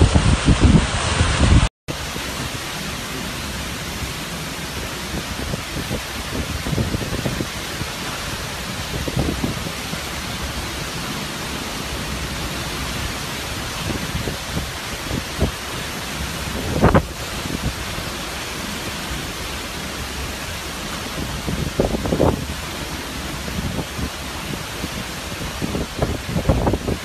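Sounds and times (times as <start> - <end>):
low rumbling wind surges: 0.0 - 27.0
strong wind and heavy rain: 0.0 - 27.0.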